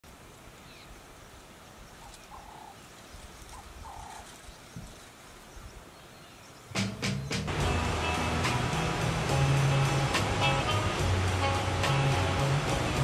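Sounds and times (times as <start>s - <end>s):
bird calls: 0.5s - 7.5s.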